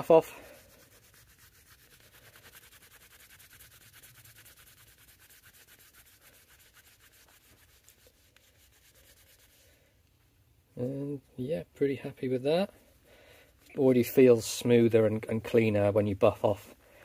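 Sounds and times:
cloth rubbing on plastic: 0:00.0 - 0:09.9.

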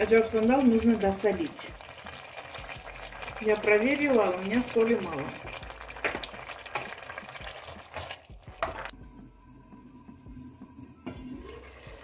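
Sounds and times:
spoon stirring thick stew: 0:05.5 - 0:09.0.

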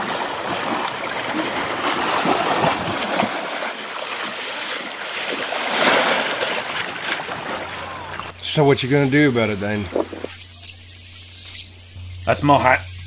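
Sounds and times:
splashing footsteps wading through water: 0:00.0 - 0:08.4.

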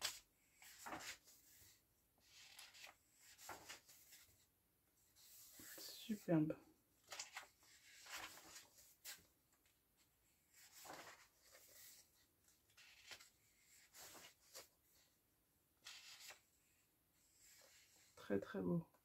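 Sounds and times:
paper pages rustling: 0:00.0 - 0:04.4, 0:07.0 - 0:09.6, 0:10.5 - 0:15.1, 0:15.8 - 0:16.5.

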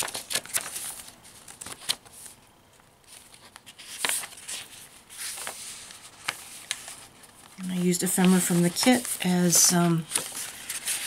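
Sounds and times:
paper pages rustling: 0:00.0 - 0:11.0.

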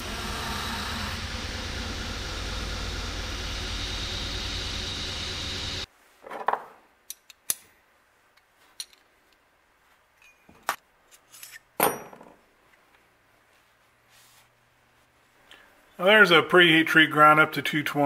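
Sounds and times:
belt grinder grinding steel: 0:00.0 - 0:05.9
knocks and metallic clinks: 0:08.7 - 0:09.2, 0:10.1 - 0:12.4.

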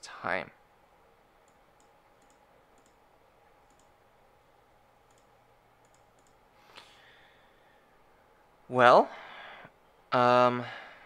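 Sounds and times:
computer keys clicking: 0:01.4 - 0:03.0, 0:03.6 - 0:04.0, 0:05.0 - 0:06.4.

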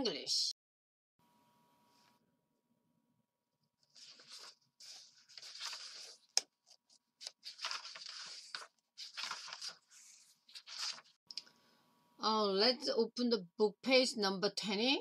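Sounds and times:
paper rustling and crinkling: 0:03.8 - 0:11.2.

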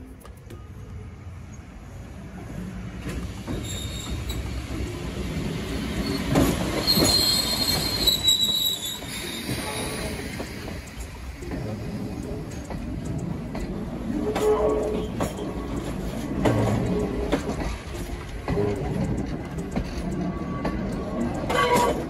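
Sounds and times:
train wheels rumbling on rails: 0:00.0 - 0:22.0
high squeal of wheels: 0:03.5 - 0:04.6, 0:05.9 - 0:10.3.

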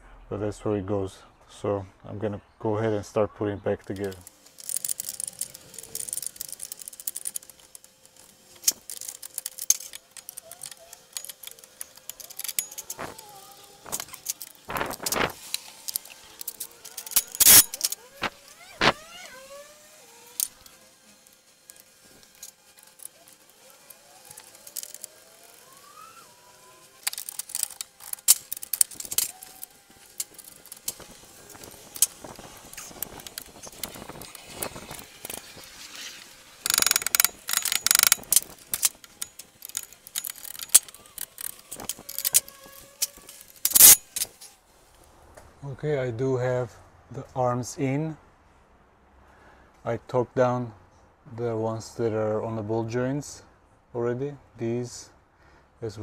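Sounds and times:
metal parts clinking and knocking: 0:04.0 - 0:19.0, 0:21.7 - 0:25.7, 0:26.6 - 0:35.6, 0:36.6 - 0:44.4
faint squeaks: 0:39.2 - 0:44.6.

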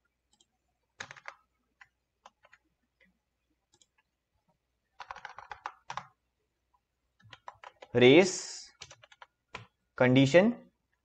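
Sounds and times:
computer keyboard keystrokes: 0:00.3 - 0:02.6, 0:05.0 - 0:06.2, 0:07.2 - 0:07.9, 0:08.8 - 0:09.7.

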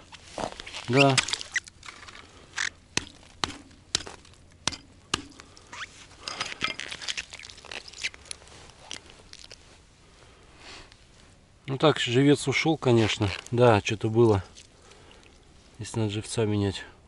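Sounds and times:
loose ice scraping and crunching: 0:00.0 - 0:09.8, 0:12.4 - 0:14.8
hatchet chopping ice: 0:02.9 - 0:05.4.

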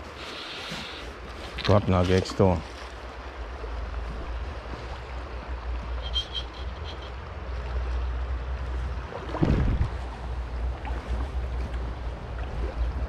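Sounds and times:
river current rushing: 0:00.0 - 0:13.0
wind rumble on microphone: 0:07.4 - 0:13.0.

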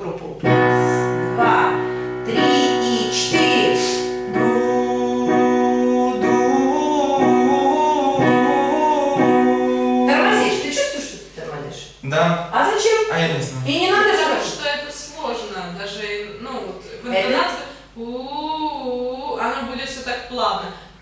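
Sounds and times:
piano accompaniment: 0:00.0 - 0:10.8
person singing sustained notes: 0:00.8 - 0:10.7.

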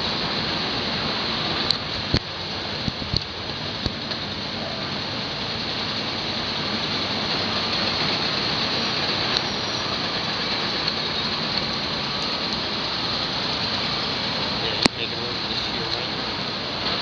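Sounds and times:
excavator diesel engine rumble: 0:00.0 - 0:17.0.

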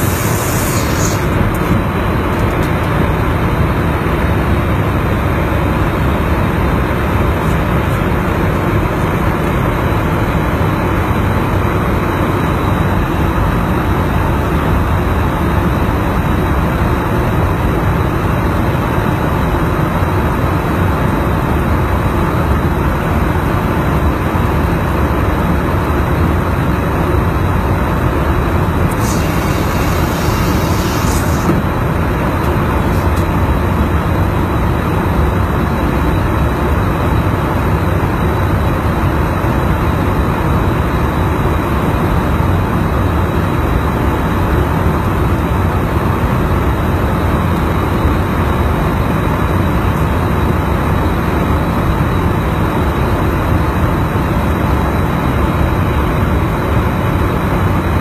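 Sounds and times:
high hiss: 0:00.0 - 0:01.7, 0:28.9 - 0:31.5
aircraft engine rumble in flight: 0:00.0 - 0:58.0.

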